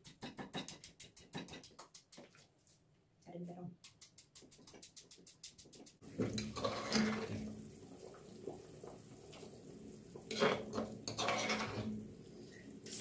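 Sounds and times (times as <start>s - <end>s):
stone pestle tapping in mortar: 0.0s - 2.3s
pot of broth simmering: 6.0s - 13.0s
metal spoon scraping stone mortar: 6.4s - 7.3s, 10.3s - 11.9s.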